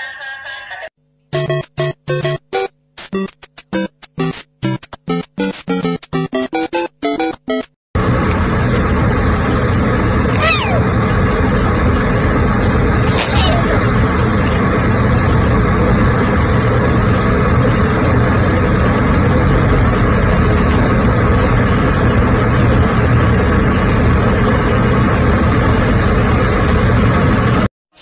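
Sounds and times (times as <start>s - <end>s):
loud steady rumbling: 8.0s - 27.7s.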